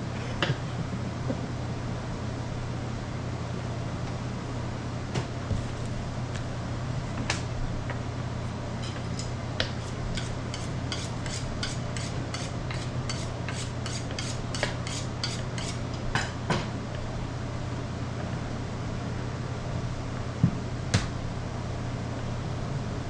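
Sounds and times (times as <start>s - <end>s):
low machine hum: 0.0s - 23.0s
knife scraping strokes: 8.8s - 15.9s.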